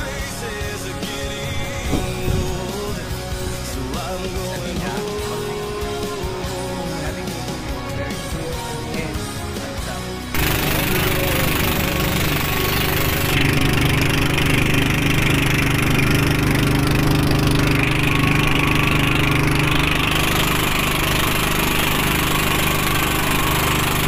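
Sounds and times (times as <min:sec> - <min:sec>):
boat engine droning: 0:10.4 - 0:24.0.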